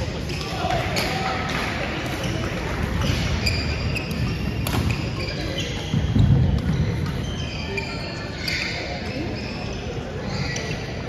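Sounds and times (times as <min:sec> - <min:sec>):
squeaks of court shoes: 0:02.1 - 0:11.0
racket hitting shuttlecock: 0:04.1 - 0:05.1.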